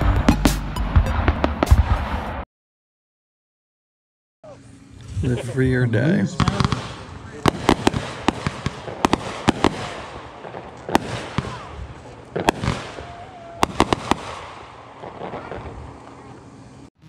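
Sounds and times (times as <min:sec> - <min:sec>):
firework bangs and pops: 0:01.1 - 0:02.4, 0:06.4 - 0:16.3.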